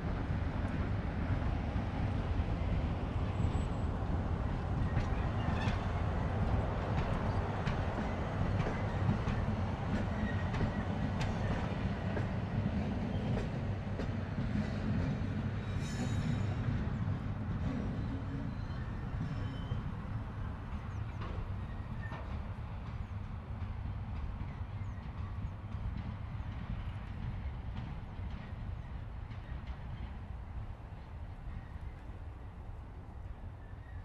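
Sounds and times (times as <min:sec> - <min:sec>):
high squeal: 0:15.6 - 0:16.6.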